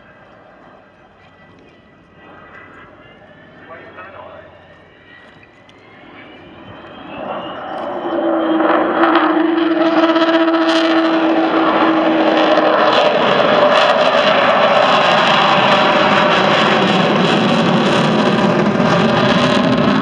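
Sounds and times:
jet aircraft flying past: 0.0 - 20.0
steady howling tone: 0.0 - 20.0.

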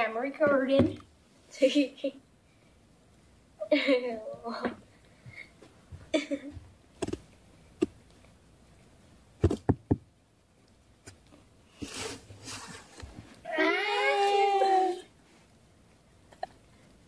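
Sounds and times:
sharp taps and knocks: 7.0 - 8.0, 9.4 - 10.1.

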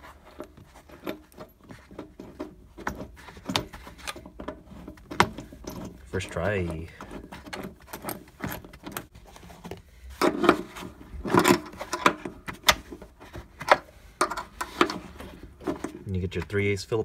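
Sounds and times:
rustling of carpet: 0.0 - 14.0.

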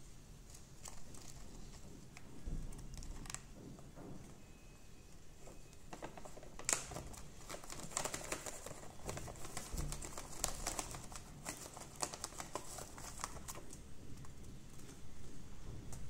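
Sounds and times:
plastic packet crinkling: 5.9 - 13.8.

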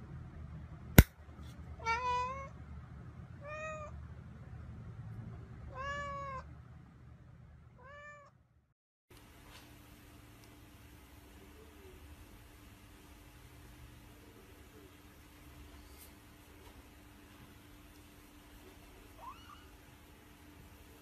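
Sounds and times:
cat meowing: 1.8 - 2.5, 3.4 - 3.9, 5.7 - 6.5, 7.8 - 8.3, 19.1 - 19.7.

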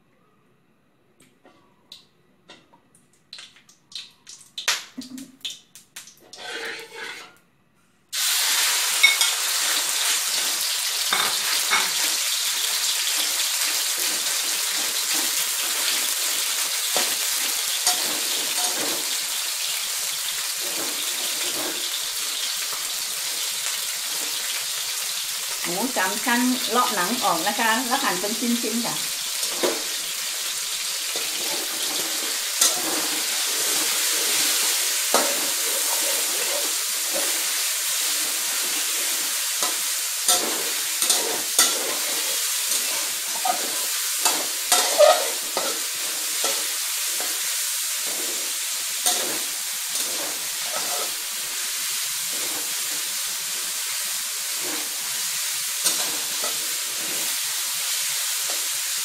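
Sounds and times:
pork sizzling in hot oil: 3.3 - 7.1, 8.2 - 59.0
metal spatula scraping wok: 6.3 - 7.4, 8.9 - 19.3, 29.4 - 51.4, 52.2 - 53.5, 54.5 - 55.2, 55.8 - 57.5.

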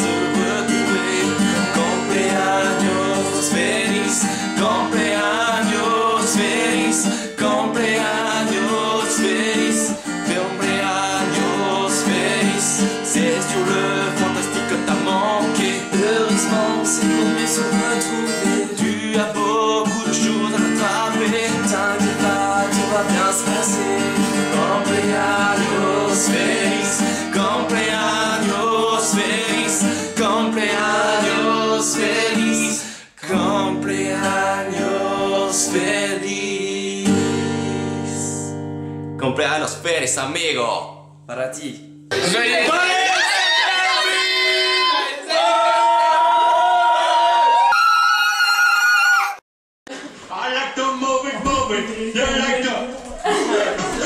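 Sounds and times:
two men singing: 0.0 - 38.4
acoustic guitar strumming: 0.0 - 44.7.

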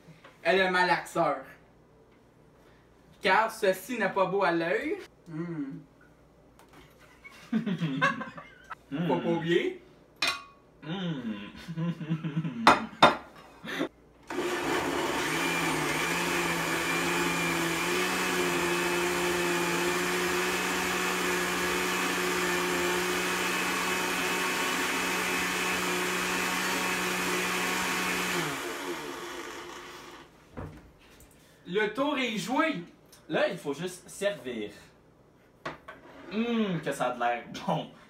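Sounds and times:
blender motor running: 14.3 - 30.3.

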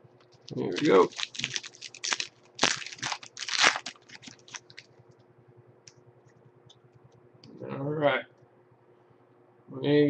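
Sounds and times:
foil wrapper tearing and crinkling: 0.4 - 4.9.

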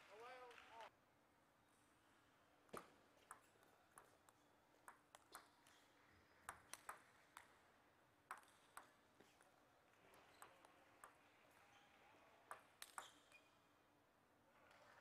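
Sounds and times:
table tennis ball clicks: 6.5 - 7.5.

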